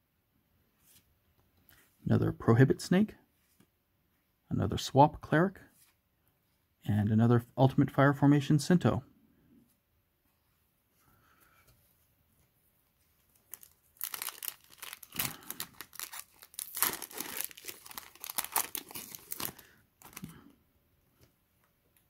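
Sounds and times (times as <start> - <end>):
foil wrapper tearing and crinkling: 13.3 - 20.3.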